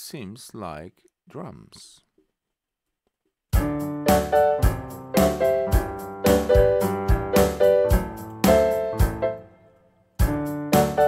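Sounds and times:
drum hits: 3.6s - 9.2s
piano chords: 3.6s - 11.0s.

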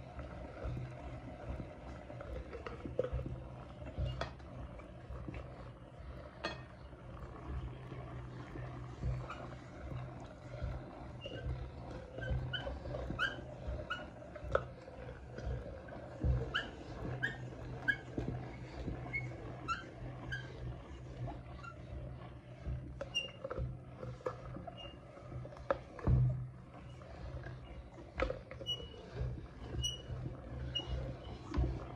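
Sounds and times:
meat grinder crank squeaking: 11.1s - 14.7s, 28.2s - 31.6s.

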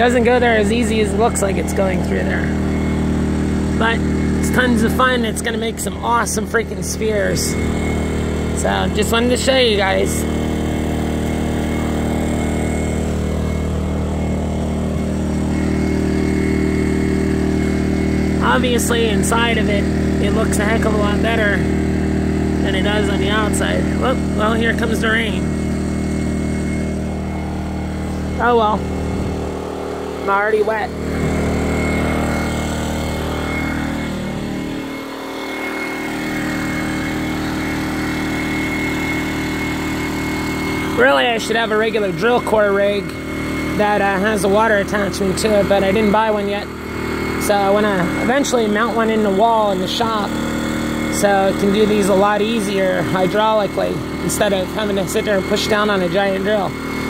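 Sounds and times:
generator engine running: 0.0s - 57.0s.

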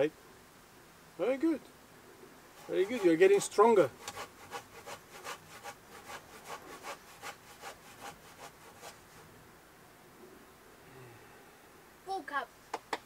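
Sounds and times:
hand saw cutting branch: 2.6s - 9.2s.

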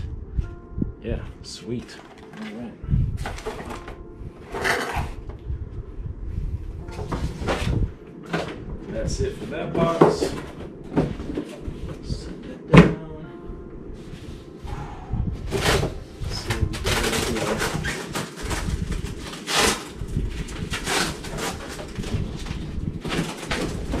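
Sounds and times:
rustling and scraping: 1.7s - 5.4s, 6.7s - 12.6s, 15.4s - 24.0s.

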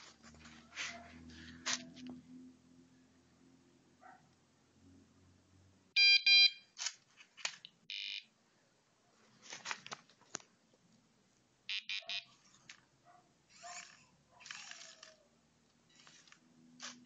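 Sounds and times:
buzzer beeps: 6.0s - 6.6s, 7.9s - 8.3s, 11.7s - 12.3s
high buzzer tone: 6.0s - 6.6s, 7.9s - 8.3s, 11.7s - 12.3s.

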